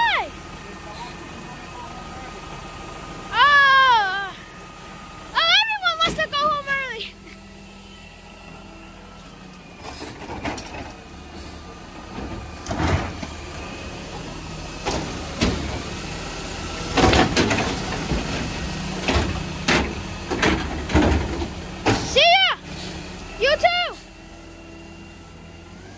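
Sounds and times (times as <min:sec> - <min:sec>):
garbage truck running: 0:00.0 - 0:25.9
metal clanks and bangs: 0:16.8 - 0:22.2.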